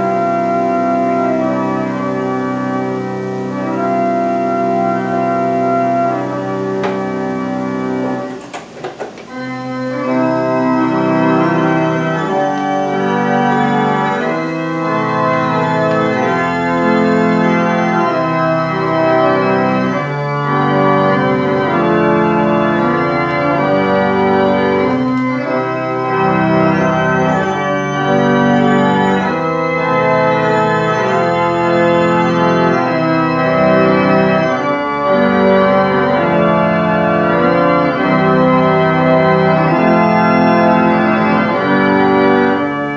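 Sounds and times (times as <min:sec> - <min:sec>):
pipe organ chords: 0:00.0 - 0:42.9.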